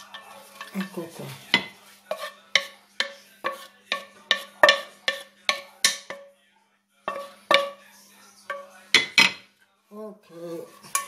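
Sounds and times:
wooden spoon knocking on pan: 1.5s - 6.3s, 7.1s - 7.8s, 8.5s - 9.4s.

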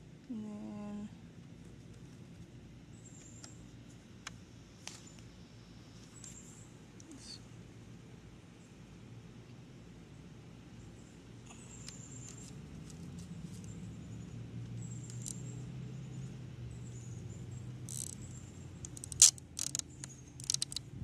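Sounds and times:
low steady hum: 0.0s - 21.0s
zip tie clicking tight: 17.9s - 18.2s, 18.8s - 20.8s.

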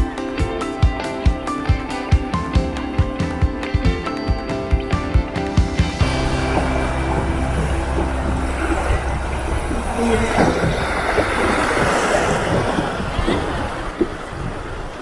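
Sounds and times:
background music: 0.0s - 11.5s
river rapids rushing: 6.0s - 15.0s.

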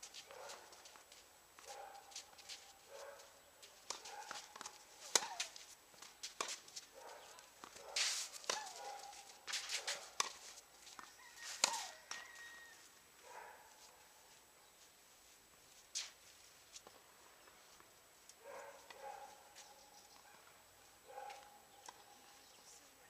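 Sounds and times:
shoes squeaking on court: 0.0s - 12.9s
tennis ball struck and bouncing: 3.8s - 5.6s, 6.2s - 6.6s, 7.6s - 8.8s, 9.5s - 12.2s.

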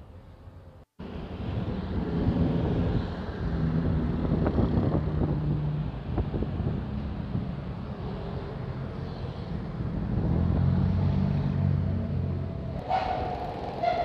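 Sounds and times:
bus engine hum: 0.0s - 14.0s
road rumble: 0.0s - 14.0s
wind on microphone: 1.5s - 7.7s.

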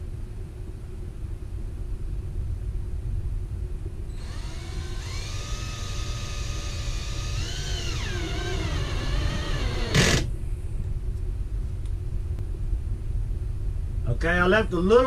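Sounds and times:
cordless drill motor whine: 4.1s - 10.3s.

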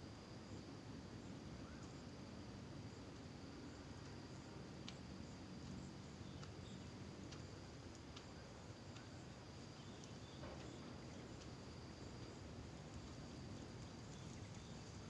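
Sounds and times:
high-pitched insect trill: 8.3s - 15.0s.

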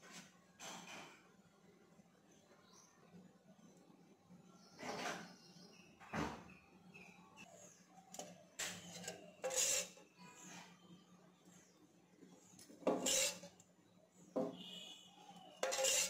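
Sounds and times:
utensils knocking and scraping: 8.2s - 10.0s, 12.6s - 13.6s, 15.6s - 16.0s
cookware clatter: 12.8s - 13.6s, 15.6s - 16.0s.

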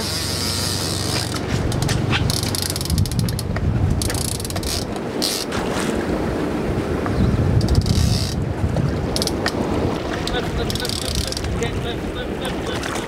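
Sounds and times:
fishing reel clicking rapidly: 2.3s - 5.5s, 7.6s - 8.4s, 9.2s - 9.6s, 10.6s - 11.6s.

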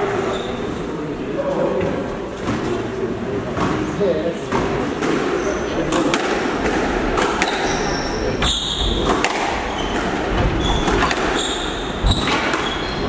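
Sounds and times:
shoes squeaking on wooden floor: 7.4s - 13.0s
squash ball knocking: 8.9s - 11.4s.

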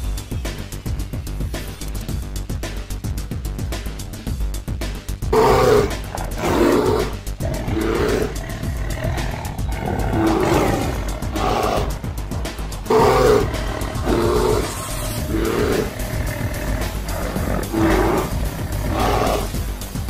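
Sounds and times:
background music: 0.0s - 20.0s
animals roaring and growling: 5.3s - 20.0s.

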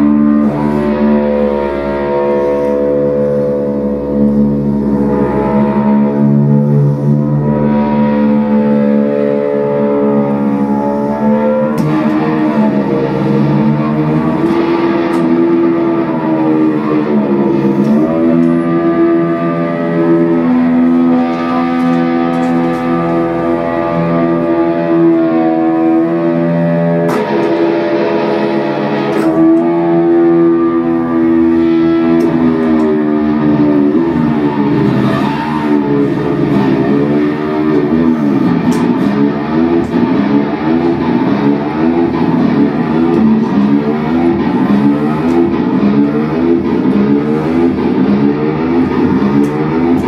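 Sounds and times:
electric guitar sustained chords: 0.0s - 50.0s.

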